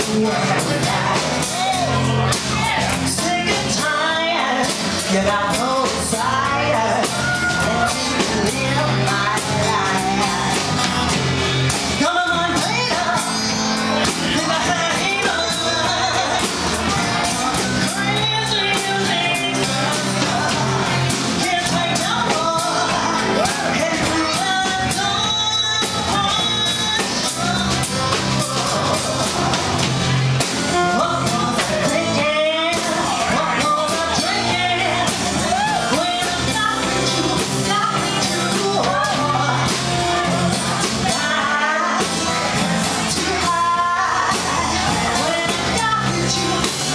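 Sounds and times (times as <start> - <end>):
acoustic guitar: 0.0 - 46.9
drum kit: 0.0 - 46.9
electric guitar: 0.0 - 46.9
woman singing lead: 0.0 - 46.9.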